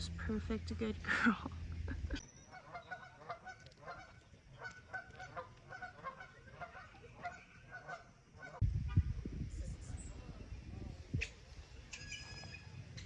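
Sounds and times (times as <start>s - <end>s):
waterfowl honking: 2.5s - 8.6s.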